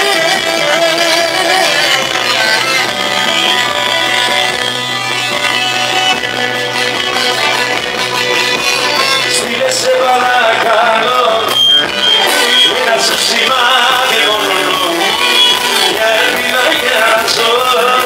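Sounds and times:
clarinet: 0.0 - 9.4
drum kit: 0.0 - 18.0
person singing: 0.0 - 18.0.

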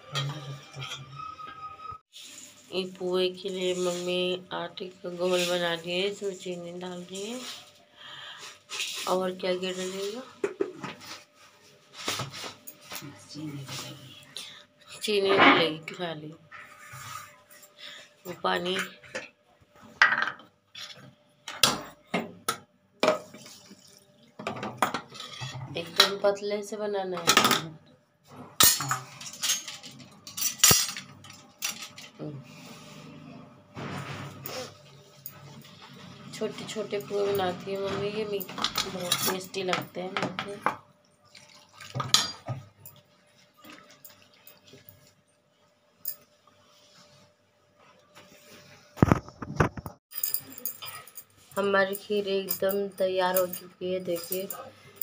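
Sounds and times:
water pouring into a bowl: 23.4 - 24.4, 41.1 - 42.2
kitchen utensils clattering on stone: 28.5 - 32.2, 36.5 - 40.8.

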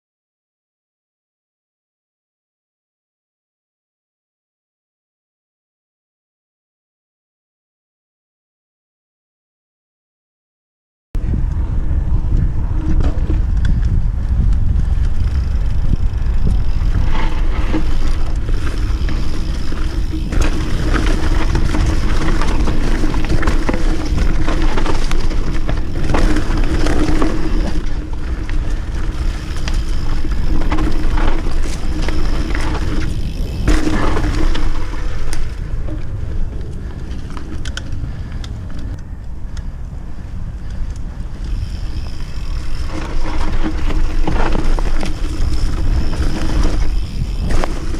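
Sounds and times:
wind rumble on microphone: 11.2 - 47.9
bike knocks and rattles over bumps: 12.2 - 39.0, 40.7 - 47.9.

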